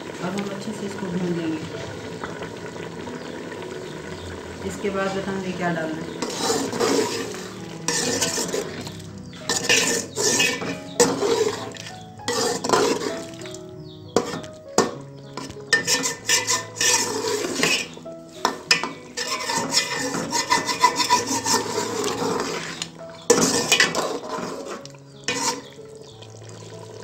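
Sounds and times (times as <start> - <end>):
curry frying: 0.0 - 27.0
metal spatula scraping metal pot: 6.1 - 26.2.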